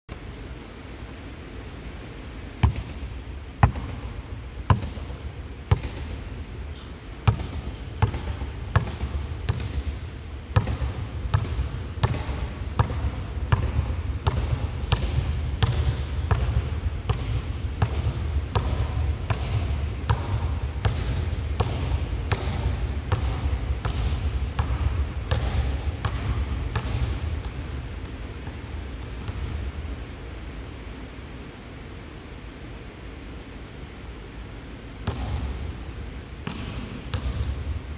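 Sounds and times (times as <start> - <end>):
basketball bouncing on hardwood: 2.6 - 3.0, 3.6 - 4.0, 4.7 - 6.2, 7.2 - 9.9, 10.6 - 27.6.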